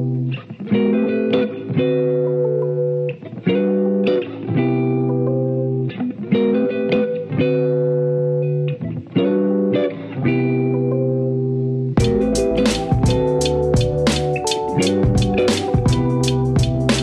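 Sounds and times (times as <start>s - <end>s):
plucked guitar chords: 0.0s - 17.0s
bass: 11.6s - 17.0s
drum hits: 12.0s - 17.0s.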